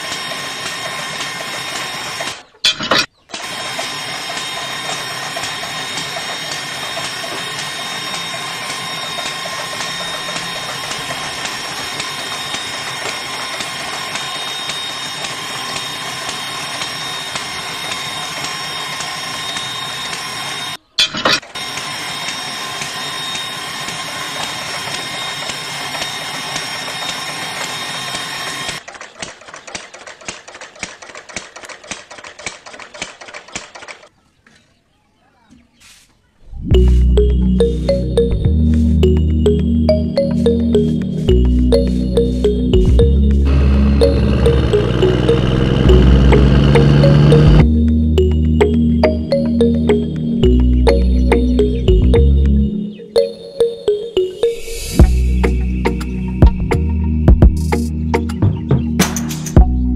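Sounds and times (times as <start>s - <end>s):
small motor whirring: 3.3s - 20.8s, 21.5s - 28.8s, 43.4s - 47.7s
fast even ticking: 42.4s - 48.8s.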